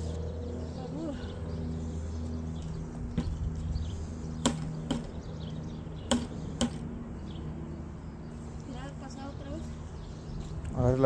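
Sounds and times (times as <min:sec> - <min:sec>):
sharp knocks: 0:04.4 - 0:05.2, 0:06.1 - 0:06.8.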